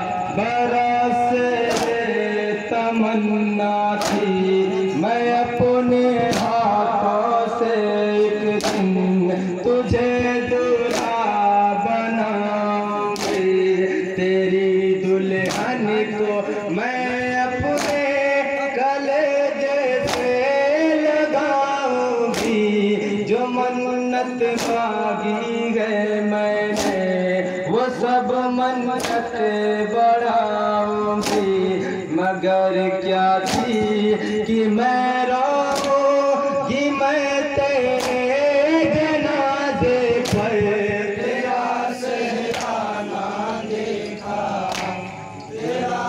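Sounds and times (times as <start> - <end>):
man singing lament: 0.0 - 46.0
sharp beat: 0.2 - 14.4, 15.4 - 16.3, 17.1 - 18.5, 20.0 - 20.6, 21.9 - 23.3, 24.3 - 25.5, 26.6 - 27.3, 28.9 - 29.8, 31.0 - 32.0, 33.4 - 34.5, 35.6 - 43.0.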